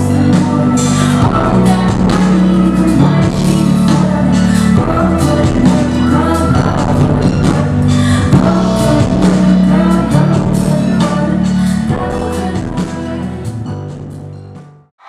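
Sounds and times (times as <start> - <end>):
voices singing: 0.0 - 13.6
live band playing: 0.0 - 14.7.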